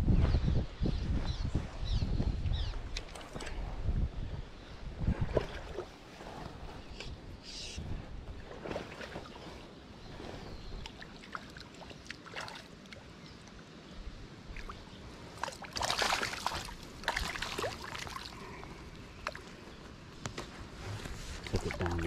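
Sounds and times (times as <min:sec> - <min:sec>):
low wind rumble: 0:00.0 - 0:11.0
water splashing and sloshing: 0:02.8 - 0:03.8, 0:05.0 - 0:07.2, 0:08.1 - 0:13.8, 0:14.4 - 0:22.0.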